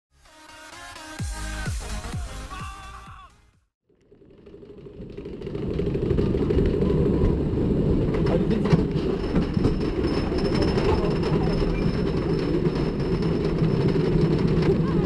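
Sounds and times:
roller coaster lift chain clattering: 4.4s - 15.0s.

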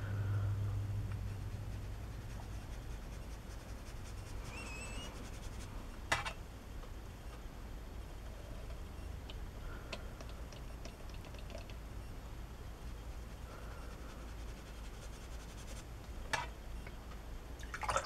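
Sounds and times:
paintbrush scratching on paper: 1.2s - 5.7s, 12.7s - 15.9s.

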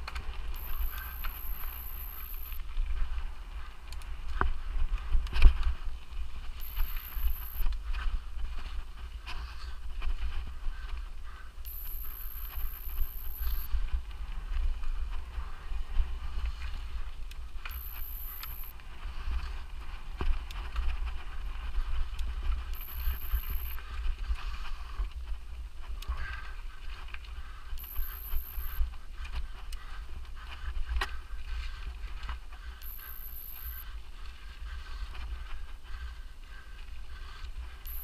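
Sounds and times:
small clicks: 0.0s - 2.6s, 6.6s - 7.8s, 11.6s - 13.7s, 17.2s - 18.7s, 22.1s - 23.8s, 27.2s - 29.8s, 32.8s - 33.8s
bike tyres on dirt: 0.0s - 38.0s
high thin whine: 0.5s - 2.6s, 6.6s - 7.7s, 11.7s - 13.7s, 17.7s - 18.7s, 22.8s - 23.8s, 27.8s - 28.8s, 32.8s - 33.9s
wind rumble on microphone: 1.6s - 6.6s, 7.2s - 11.7s, 13.7s - 17.7s, 18.7s - 27.8s.

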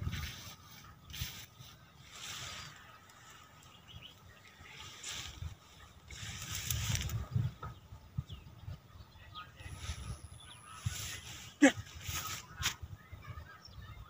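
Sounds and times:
vines rustling underfoot: 0.0s - 7.7s, 9.6s - 13.0s.

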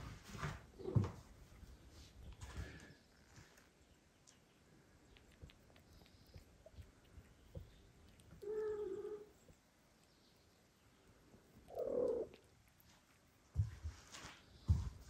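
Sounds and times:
cat meowing: 8.4s - 9.4s.

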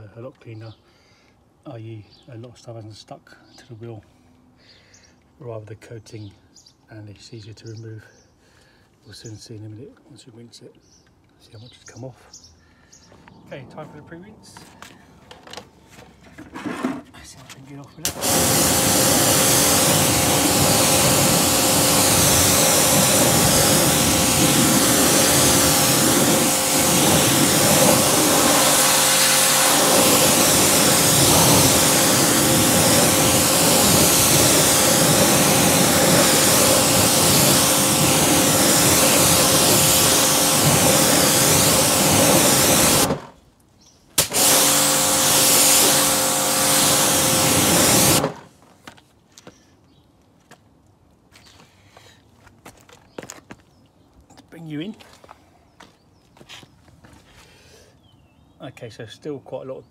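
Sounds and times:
pressure washer jet hissing: 18.0s - 43.4s, 44.2s - 48.5s
pump motor humming: 18.1s - 43.4s, 44.2s - 48.5s.

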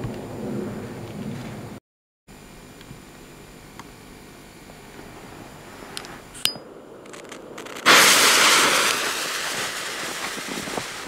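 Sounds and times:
firecracker fuse hissing: 7.1s - 11.0s.

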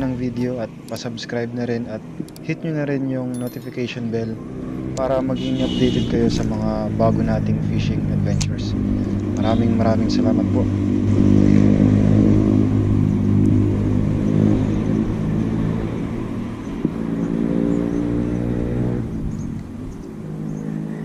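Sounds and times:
vehicle engine running: 3.6s - 17.4s.

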